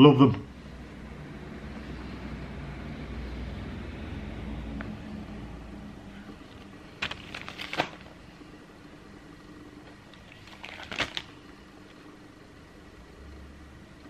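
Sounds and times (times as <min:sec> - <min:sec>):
plastic bag crinkling: 0:06.4 - 0:08.2, 0:10.1 - 0:11.5.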